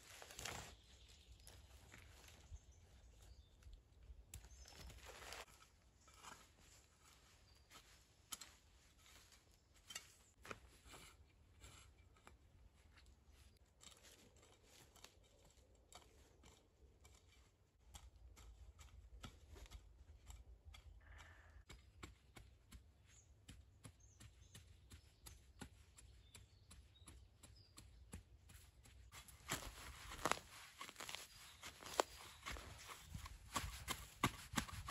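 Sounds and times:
shovel scraping soil and leaves: 0.0 - 2.5, 4.4 - 17.6, 29.1 - 34.9.

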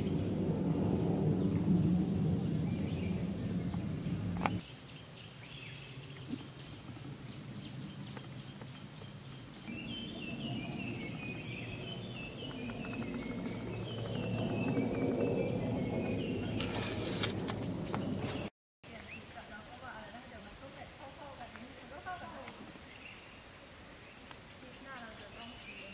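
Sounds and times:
high-pitched insect drone: 0.0 - 18.3.

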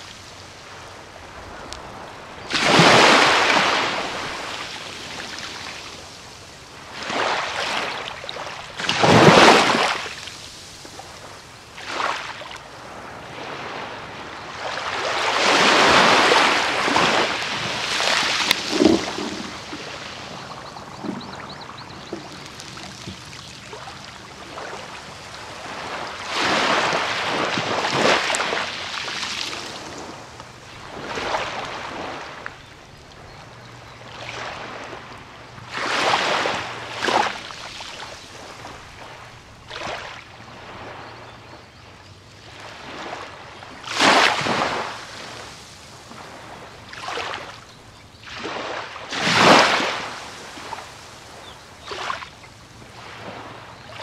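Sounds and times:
small waves breaking on beach: 0.0 - 54.0.

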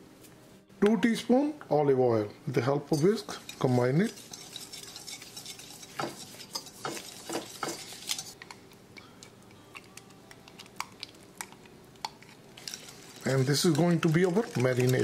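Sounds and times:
whisk clicking against glass bowl: 3.0 - 8.4.

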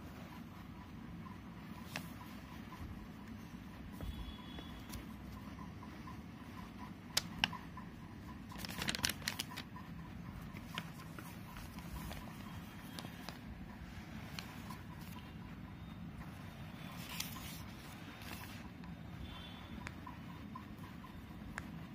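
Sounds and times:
steady low hum: 0.0 - 21.9
paper rustling: 8.5 - 9.7, 17.0 - 18.6.

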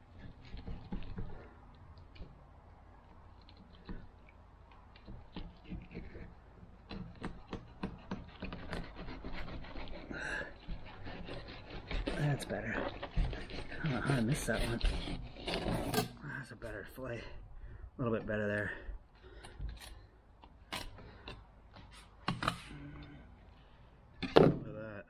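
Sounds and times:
knife scraping on fish bone: 5.0 - 16.2.

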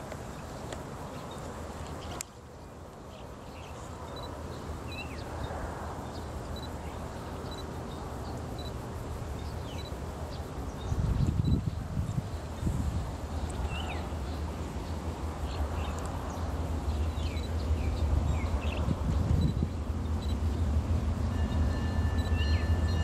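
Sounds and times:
birds chirping: 9.3 - 23.0.

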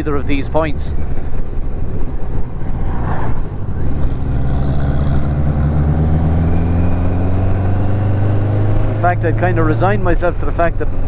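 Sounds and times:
wind and road noise: 0.0 - 11.0.

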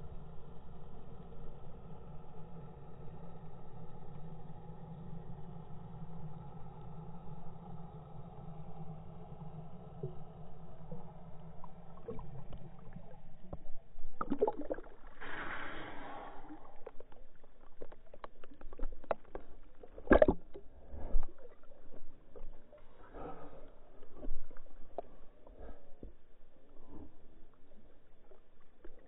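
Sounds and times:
muffled underwater sound: 0.0 - 29.0
water splashing: 14.1 - 23.1.

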